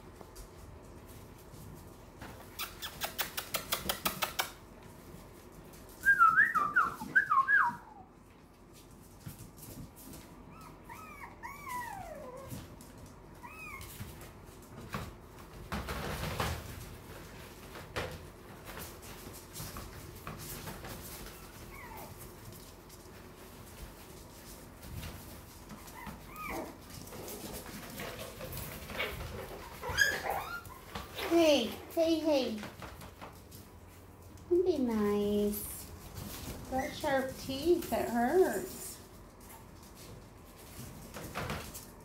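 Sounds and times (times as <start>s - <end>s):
rustling: 0.0s - 42.0s
puppies yelping and whining: 10.5s - 12.7s, 13.3s - 14.1s, 21.2s - 22.3s, 25.8s - 27.2s, 28.9s - 31.2s.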